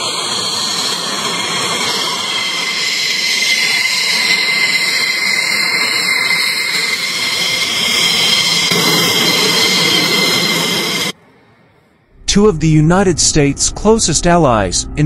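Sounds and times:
high steady whine: 0:00.0 - 0:15.0
jet engines idling: 0:00.0 - 0:15.0.

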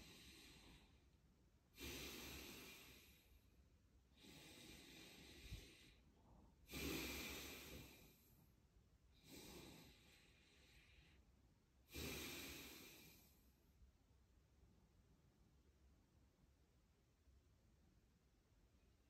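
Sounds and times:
man breathing deeply: 0:00.0 - 0:01.1, 0:01.7 - 0:03.5, 0:04.1 - 0:08.5, 0:09.1 - 0:11.3, 0:11.9 - 0:13.4.

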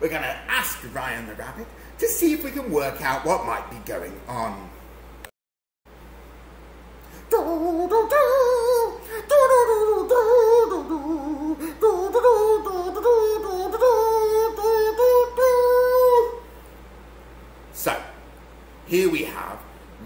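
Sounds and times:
person humming: 0:07.3 - 0:16.4.

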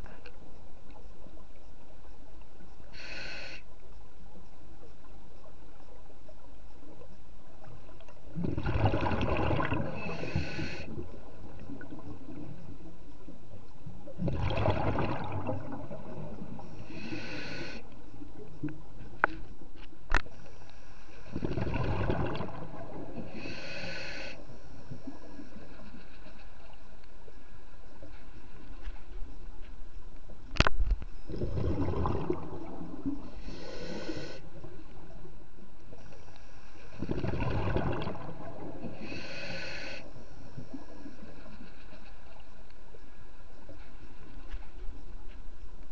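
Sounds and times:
scuba breath rush: 0:02.9 - 0:03.7, 0:09.8 - 0:11.0, 0:16.6 - 0:17.9, 0:23.2 - 0:26.4, 0:31.2 - 0:34.7, 0:38.7 - 0:42.0
exhaled bubbles: 0:08.3 - 0:12.6, 0:14.1 - 0:17.7, 0:21.2 - 0:23.6, 0:31.2 - 0:35.1, 0:36.9 - 0:39.4.

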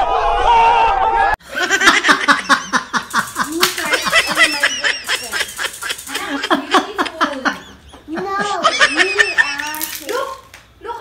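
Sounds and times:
rapid repeated laughter: 0:01.5 - 0:09.7.

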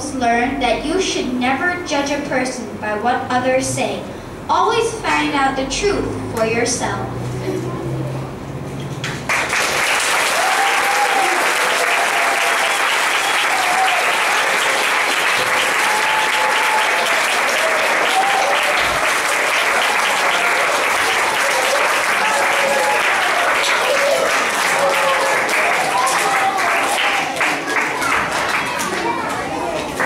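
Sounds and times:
audience applauding: 0:09.0 - 0:30.0
voices through clapping: 0:09.0 - 0:30.0.

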